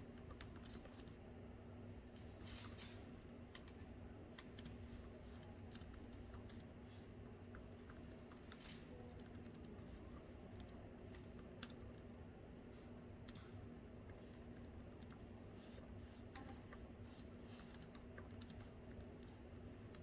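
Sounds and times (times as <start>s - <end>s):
laptop keyboard typing: 0.0s - 1.2s, 3.4s - 12.1s, 14.1s - 20.0s
low room hum: 0.0s - 20.0s.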